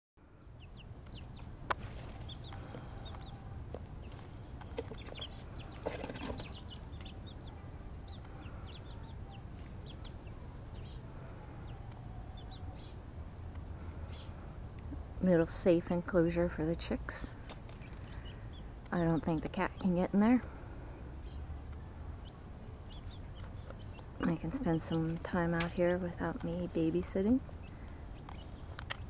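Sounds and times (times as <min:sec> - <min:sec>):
chicks peeping: 0:00.3 - 0:29.0
clicks and rustles: 0:01.1 - 0:07.2.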